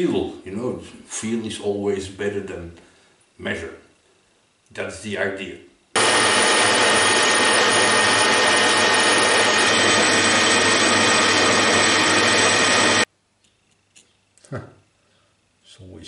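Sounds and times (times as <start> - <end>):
metal lathe machining with whine: 6.0 - 13.1.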